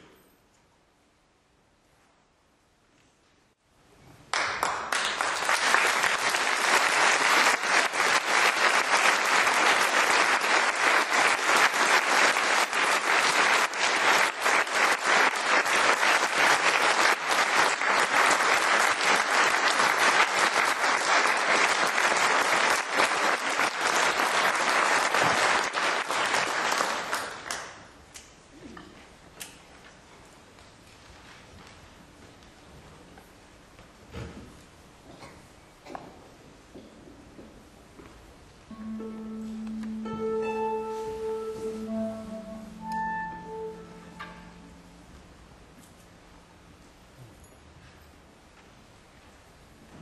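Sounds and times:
audience applauding: 4.3s - 28.0s.

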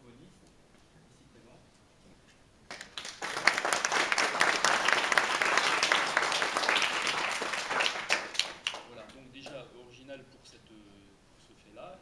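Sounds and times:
audience applauding: 2.7s - 8.9s.

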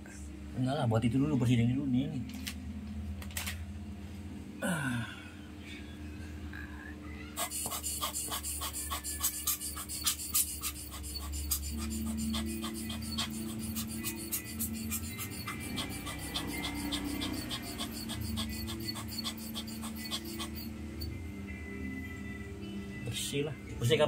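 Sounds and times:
tool scratching inside lens barrel: 7.4s - 21.1s.

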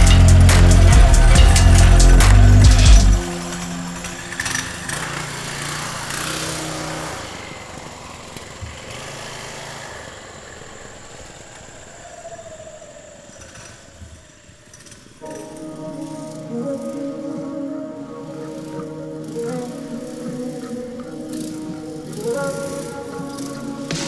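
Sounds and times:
mini bike engine running: 3.2s - 12.2s, 18.6s - 24.0s.

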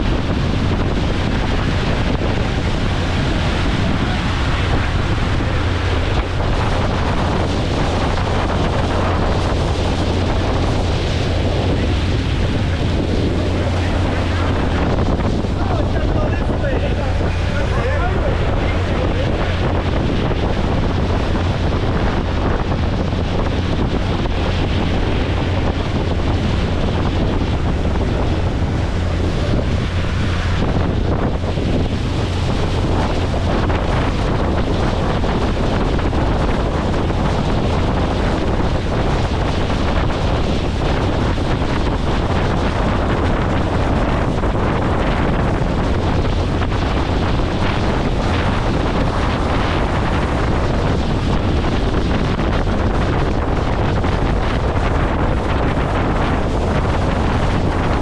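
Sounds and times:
rushing water: 0.0s - 58.0s
wind buffeting microphone: 0.0s - 58.0s.

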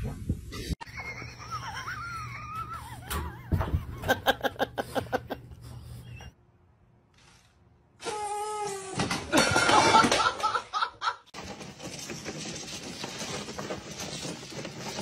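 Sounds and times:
person laughing: 0.8s - 5.7s, 9.3s - 11.3s.

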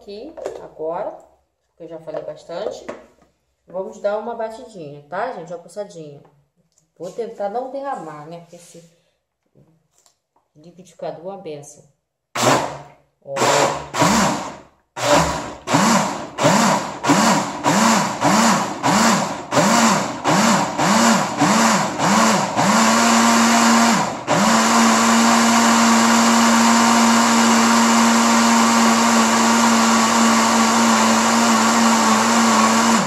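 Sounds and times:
blender motor: 12.4s - 33.0s.

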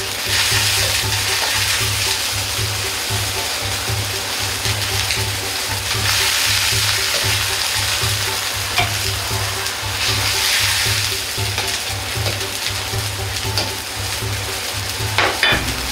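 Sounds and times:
cabbage sizzling in a wok: 0.0s - 15.9s
metal ladle stirring: 0.0s - 15.9s
regular low beat: 0.0s - 15.9s.

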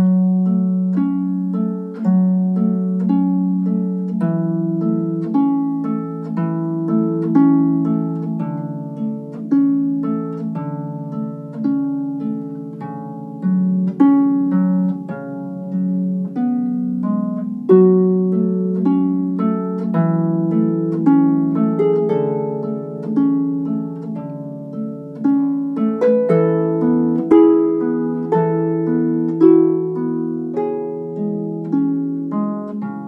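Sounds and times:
slow plucked string music: 0.0s - 33.0s.

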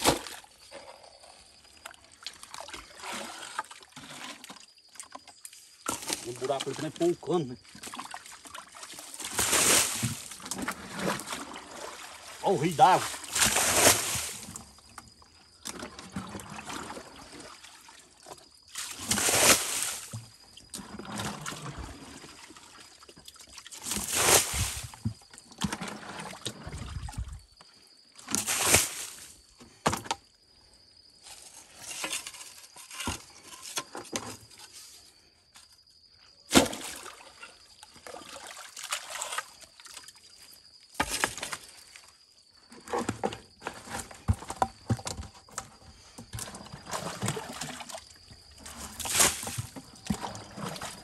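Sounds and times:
quiet water sounds: 0.0s - 29.4s, 35.5s - 51.0s
water splashing and pouring from bucket: 1.8s - 5.2s, 5.8s - 14.7s, 15.7s - 27.4s, 28.3s - 29.3s, 36.5s - 40.2s, 46.3s - 51.0s.

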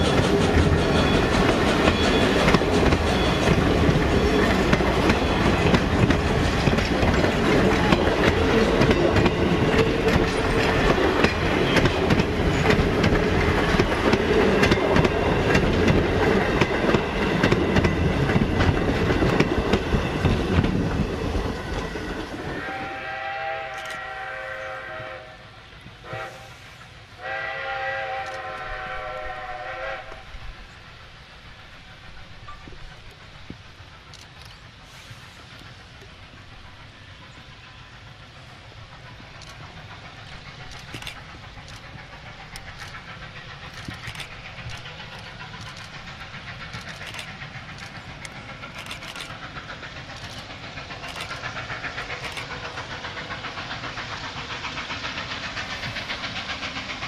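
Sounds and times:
distant steam whistle: 0.0s - 32.4s
train wheels clicking on rails: 0.0s - 57.0s.

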